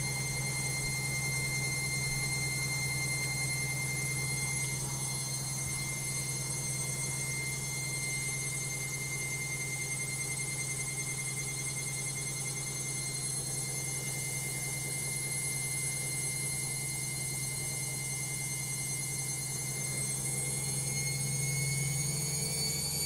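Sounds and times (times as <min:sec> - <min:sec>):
washing machine spinning: 0:00.0 - 0:23.0.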